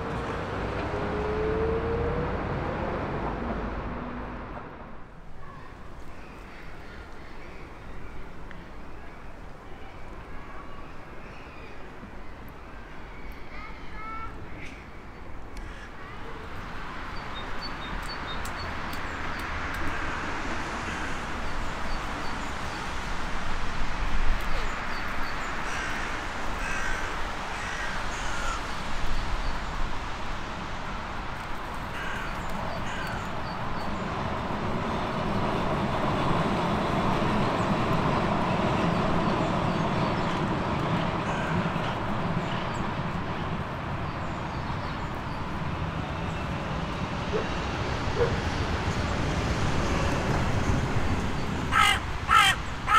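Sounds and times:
crows cawing: 15.6 - 16.0, 20.8 - 21.4, 25.7 - 28.7, 31.9 - 33.3, 41.2 - 41.9, 51.7 - 52.9.

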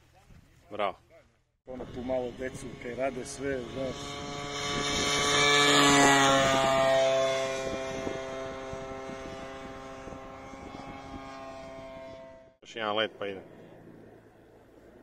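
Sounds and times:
model airplane engine passing: 1.7 - 15.0.

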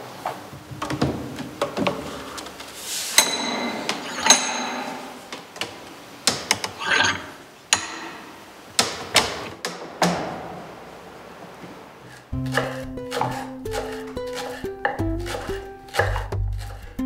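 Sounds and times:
ringing metallic clinks: 3.2 - 5.0.

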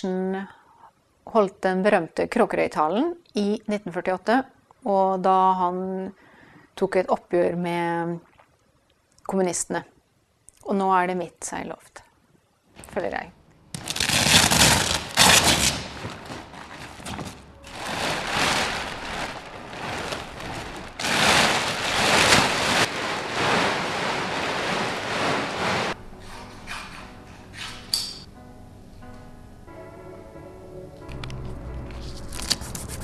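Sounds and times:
nylon sail cloth rustling: 13.8 - 26.0.

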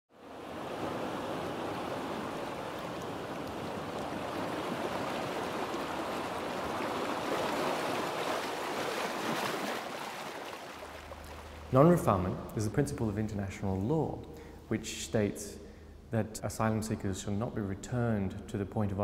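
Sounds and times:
rushing water: 0.1 - 12.1.

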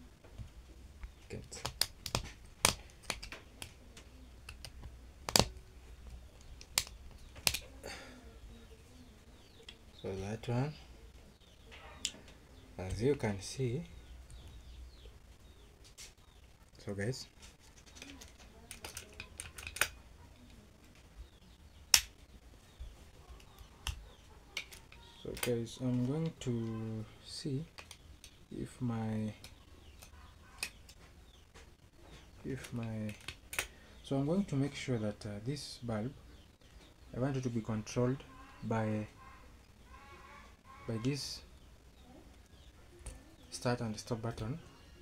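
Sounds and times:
plastic parts clicking and tapping: 0.2 - 7.8, 17.4 - 26.8, 27.7 - 28.4, 29.4 - 33.8
screwdriver clicks and taps: 4.4 - 5.6, 6.4 - 7.6, 18.0 - 20.0.

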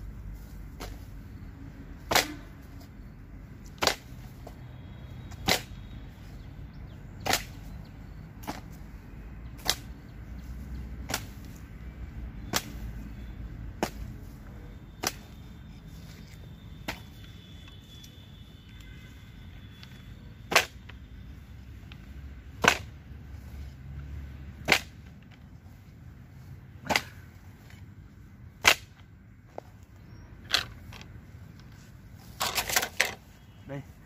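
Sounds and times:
hand hoe chopping into ground: 7.2 - 7.6, 11.0 - 11.6, 24.6 - 25.0.

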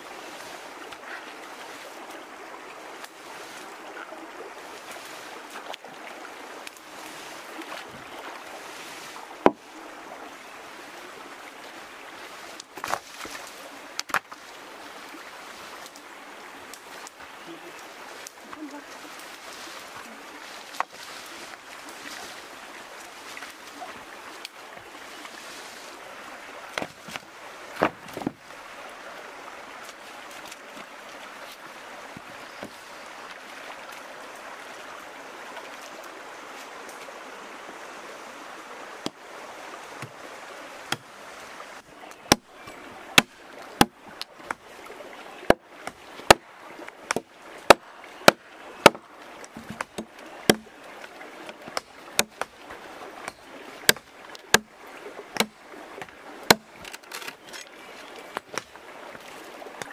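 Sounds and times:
stream water running and splashing: 0.0 - 59.9
machete chopping into wood: 47.1 - 49.0, 49.6 - 50.7, 51.7 - 52.5, 55.4 - 55.6, 56.5 - 57.3.

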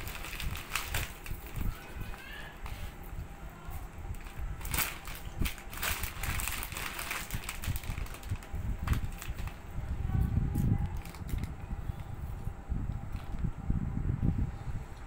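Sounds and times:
foil packet crinkling: 0.0 - 2.3, 4.1 - 9.6, 10.8 - 11.6.

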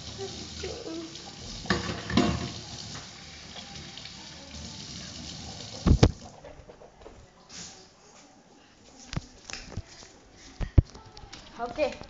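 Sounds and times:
tap running into steel sink: 1.6 - 3.1.

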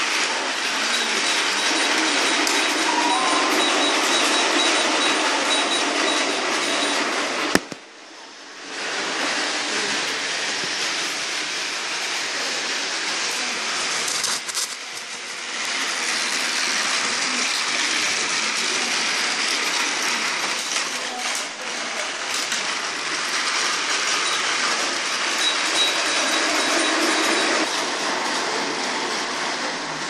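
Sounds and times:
toy train motor whirring rattle: 0.0 - 2.8, 9.0 - 29.7.

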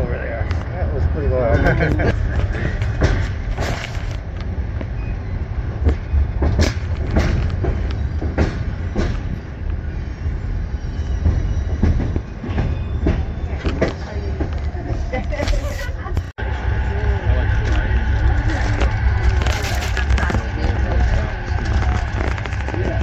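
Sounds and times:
train rumbling across bridge: 0.0 - 23.0
train wheels clicking and clanking: 1.4 - 10.0, 10.6 - 16.3.

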